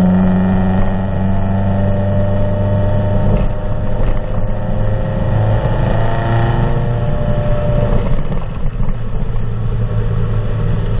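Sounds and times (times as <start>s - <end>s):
car engine exhaust idling: 6.8s - 11.0s.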